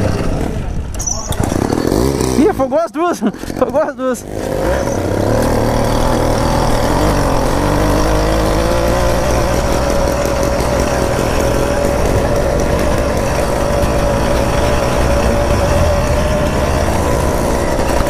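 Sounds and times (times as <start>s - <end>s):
two-stroke engine running: 0.0s - 18.0s
second engine rising in pitch: 3.6s - 18.0s.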